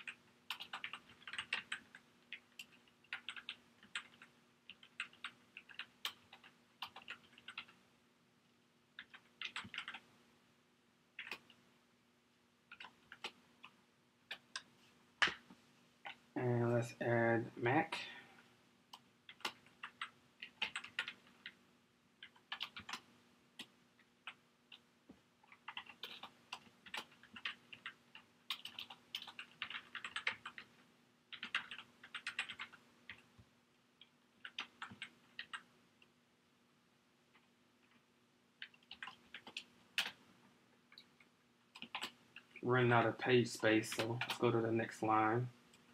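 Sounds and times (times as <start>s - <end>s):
typing on computer keyboard: 0.0s - 7.8s, 9.0s - 10.1s, 11.2s - 11.6s, 12.7s - 14.7s, 18.9s - 21.6s, 22.2s - 24.8s, 25.4s - 30.7s, 31.3s - 33.3s, 34.0s - 35.7s, 38.6s - 40.2s, 41.7s - 42.6s, 43.9s - 44.5s.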